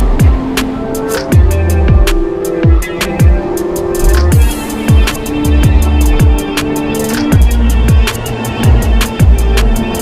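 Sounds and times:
quick hi-hat ticks: 1.0 - 10.0.

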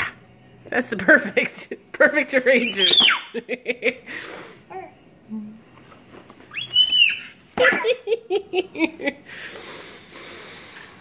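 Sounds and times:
baby squealing: 2.6 - 3.4, 6.5 - 7.8.

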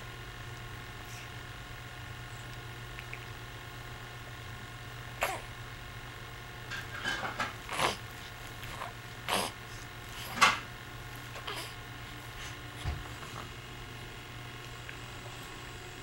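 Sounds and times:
steady low hum: 0.0 - 16.0
baby snuffling and grunting: 7.7 - 10.4, 11.3 - 12.6.

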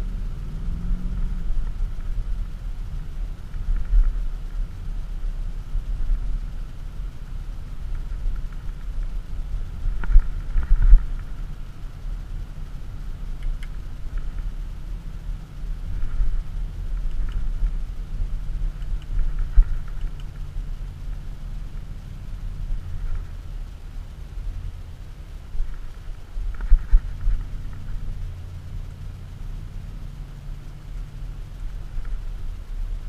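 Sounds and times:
car engine and road noise: 0.0 - 33.0.

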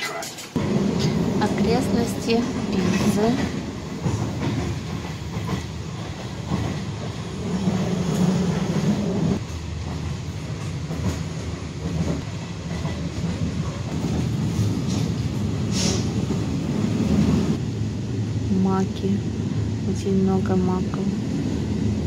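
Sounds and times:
train wheels rumbling on rails: 0.1 - 22.0.

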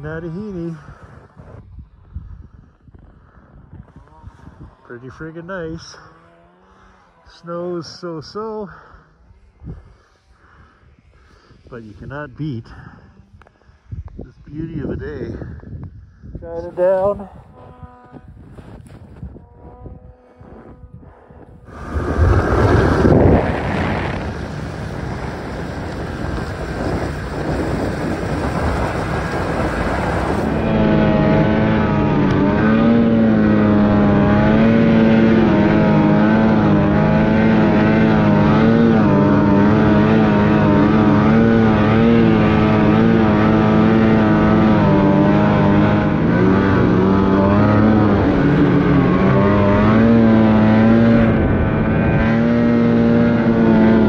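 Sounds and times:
snowmobile engine at high revs: 0.0 - 2.1, 2.7 - 13.6, 16.4 - 54.0
snowboard carving across snow: 16.6 - 54.0.

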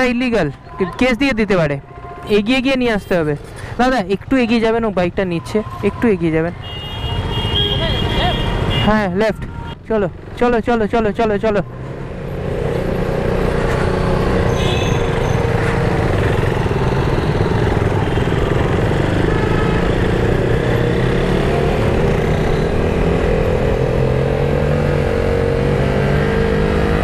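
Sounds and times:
wind and road noise: 0.0 - 27.0
motorcycle engine running: 10.1 - 25.7.

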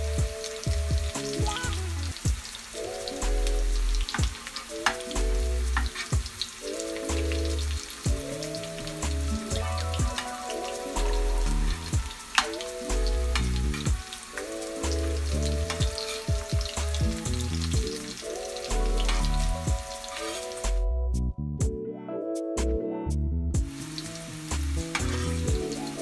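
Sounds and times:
potatoes sizzling in hot oil: 0.0 - 20.8, 23.6 - 26.0
background music with bass: 0.0 - 26.0
metal spatula turning food: 5.8 - 6.5, 11.8 - 16.9, 17.8 - 20.6, 24.8 - 26.0.

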